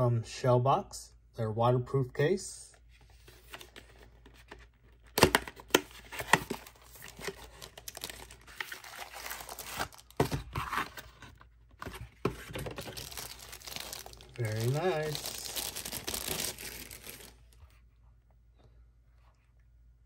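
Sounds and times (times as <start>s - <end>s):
cardboard and plastic rustling: 2.9s - 17.8s.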